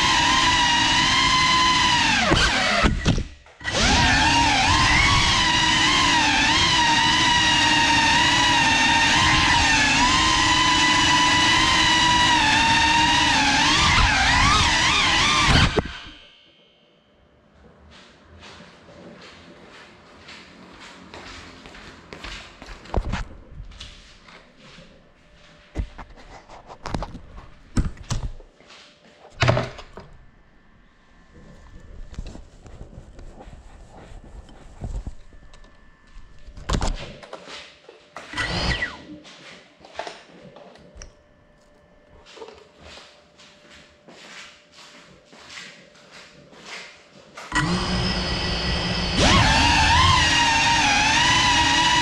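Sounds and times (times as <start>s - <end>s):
drone motors and propellers whining: 0.0s - 16.2s, 38.3s - 39.1s, 47.5s - 52.0s.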